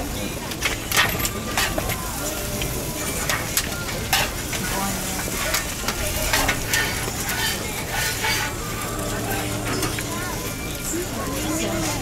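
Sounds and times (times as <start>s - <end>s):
food sizzling on a griddle: 1.4s - 12.0s
spatula scraping and clacking: 5.4s - 8.9s.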